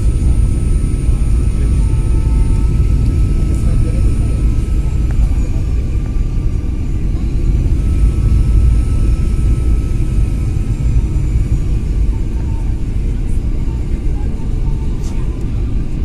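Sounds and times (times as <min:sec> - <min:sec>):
jet engine and airflow rumble: 0:00.0 - 0:16.0.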